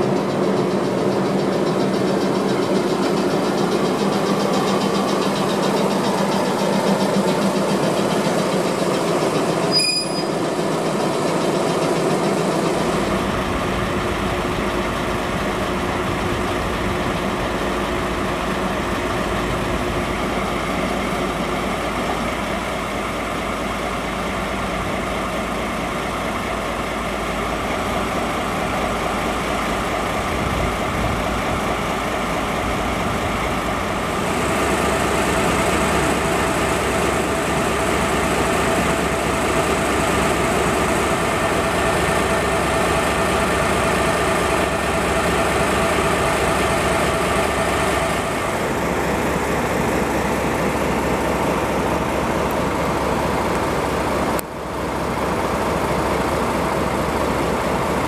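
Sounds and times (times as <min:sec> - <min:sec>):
steady whine: 0:00.0 - 0:23.4
diesel locomotive idling: 0:00.0 - 0:58.0.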